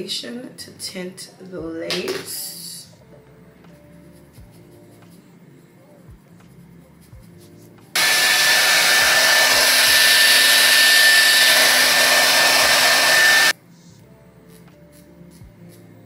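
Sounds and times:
hair dryer blowing: 8.0s - 13.5s.

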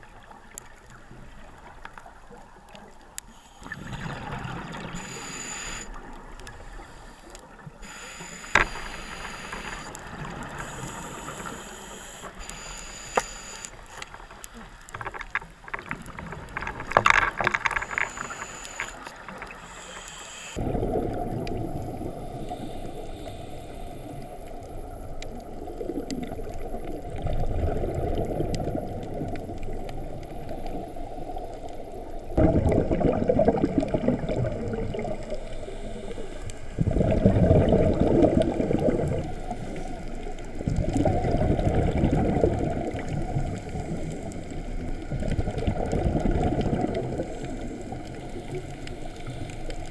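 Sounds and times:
diver regulator breathing: 3.3s - 14.4s, 17.5s - 20.6s, 22.1s - 24.6s, 35.2s - 37.8s
muffled bubble bursts: 32.4s - 35.2s, 36.8s - 39.2s.

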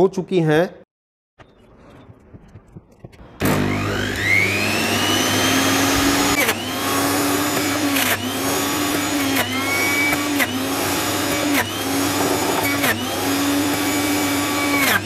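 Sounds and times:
juicer motor whining: 3.2s - 15.0s.

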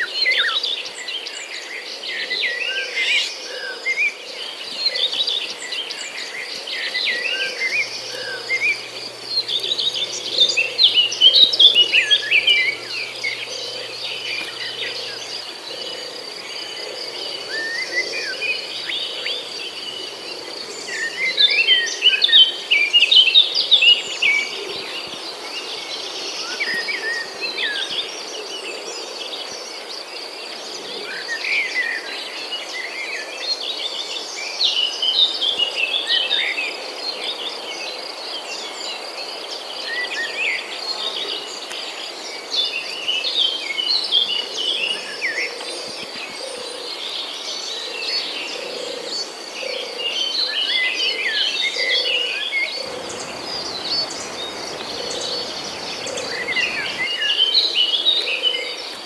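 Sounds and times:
songbirds chirping and whistling: 2.1s - 28.2s, 39.8s - 59.0s
insect trill: 5.9s - 25.3s, 51.6s - 57.8s
lower repeated animal calls: 7.3s - 21.8s, 52.8s - 57.1s.

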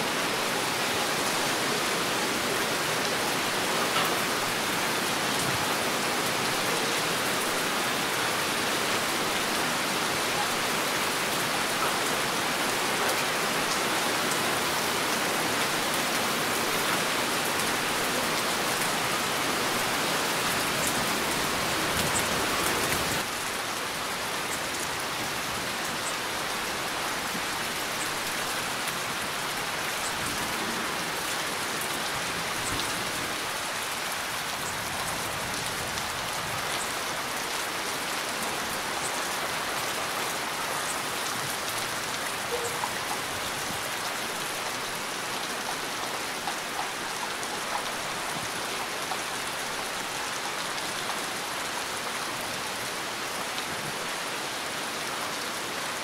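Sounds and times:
heavy rain falling: 0.0s - 56.0s.

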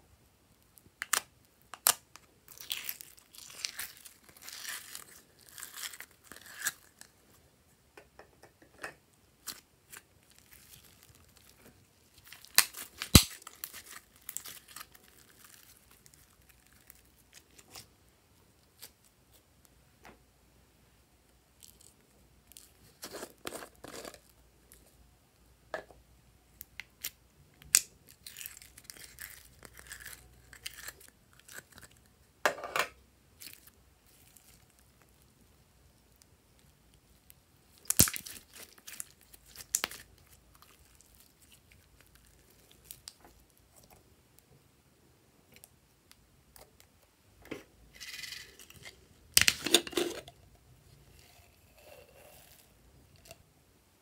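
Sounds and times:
slime crackling and popping: 1.0s - 7.0s, 9.4s - 17.8s, 37.7s - 43.8s.

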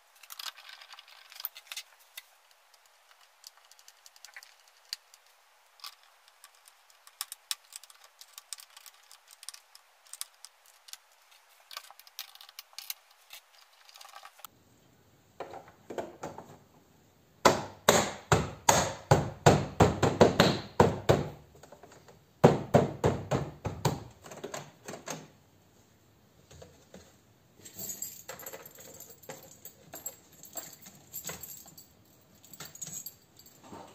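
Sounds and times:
sharp knocks on door panel: 17.4s - 21.4s, 22.4s - 24.1s.

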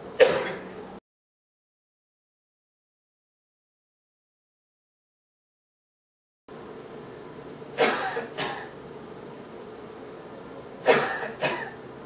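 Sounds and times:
man coughing into a mask: 0.2s - 0.7s, 7.8s - 8.8s, 10.8s - 11.8s.

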